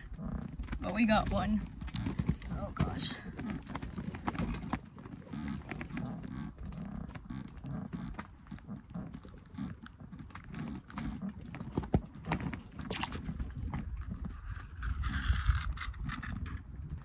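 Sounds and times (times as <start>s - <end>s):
wind rumbling on microphone: 0.0s - 17.0s
clicks and knocks handling fish: 9.7s - 17.0s.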